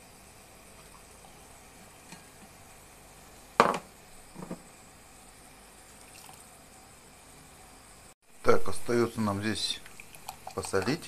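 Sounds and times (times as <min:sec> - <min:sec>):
broth simmering hiss: 0:00.0 - 0:11.0
bowl knocking on pot rim: 0:03.6 - 0:04.6.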